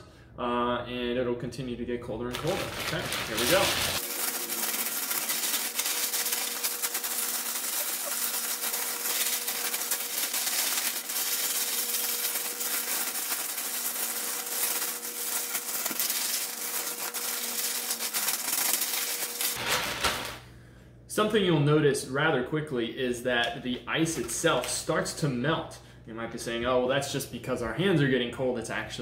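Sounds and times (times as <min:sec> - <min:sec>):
ice crunching and shifting: 0:02.3 - 0:20.3
plastic bag crinkling: 0:02.3 - 0:20.4.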